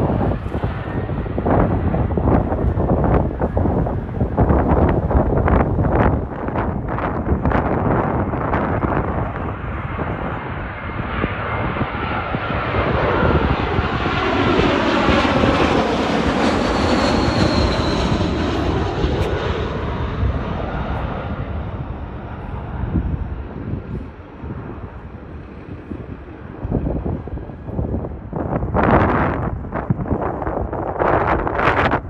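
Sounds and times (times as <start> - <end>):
jet airliner passing overhead: 0.0 - 32.0
faint high jet whine: 10.2 - 29.0.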